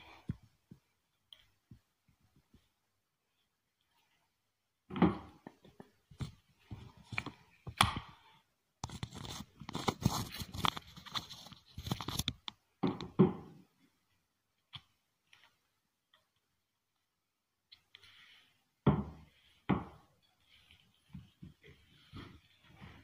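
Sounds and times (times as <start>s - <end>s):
rubber grip rubbing and scraping: 5.0s - 12.6s.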